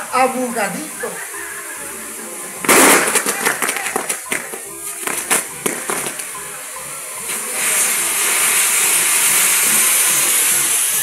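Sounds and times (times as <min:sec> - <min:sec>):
spark fountain hissing: 0:00.0 - 0:11.0
fireworks crackling: 0:02.6 - 0:06.6, 0:07.2 - 0:11.0.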